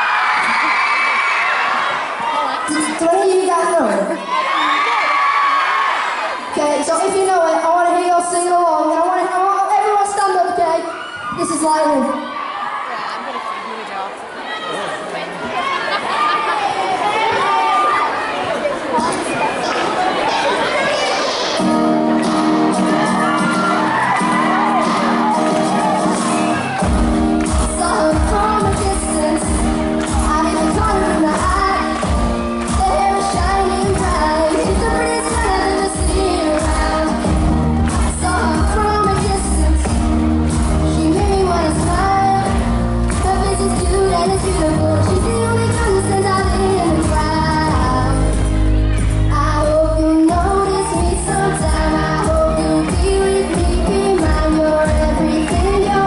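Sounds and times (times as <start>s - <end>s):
acoustic guitar: 21.5s - 56.0s
steady beat: 24.4s - 49.3s
strong bass: 26.8s - 56.0s
boy singing into a microphone: 27.6s - 32.1s, 32.7s - 37.4s, 38.1s - 40.0s, 40.9s - 48.5s, 49.3s - 56.0s.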